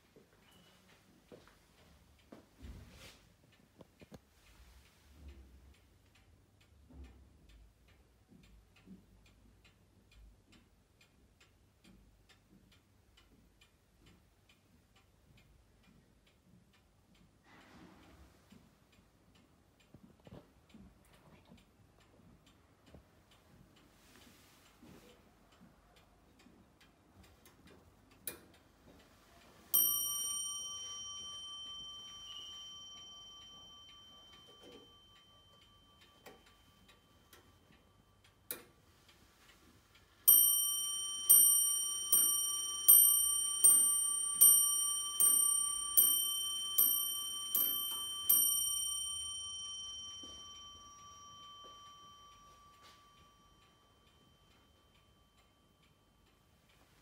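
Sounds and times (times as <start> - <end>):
clock ticking: 0.0 - 57.0
clock bell striking: 29.7 - 38.4, 40.3 - 56.2.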